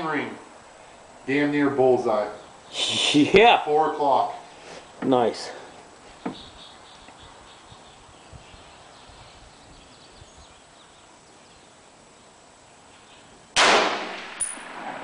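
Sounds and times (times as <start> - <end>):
rifle shot: 13.6 - 15.0.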